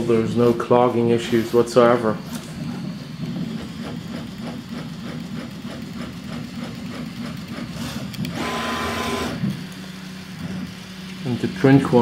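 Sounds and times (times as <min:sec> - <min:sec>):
three-d printer motors whirring: 0:00.0 - 0:12.0.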